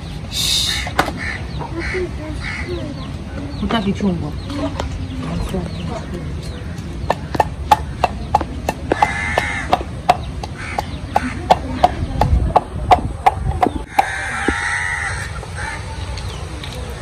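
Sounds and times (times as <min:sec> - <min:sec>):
sharp knocks: 0:07.1 - 0:14.6.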